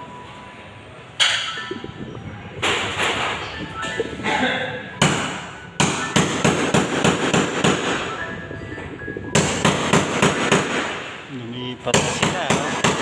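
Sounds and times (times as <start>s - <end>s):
hammer striking ceiling: 5.0s - 8.1s, 9.4s - 11.1s, 11.9s - 13.0s.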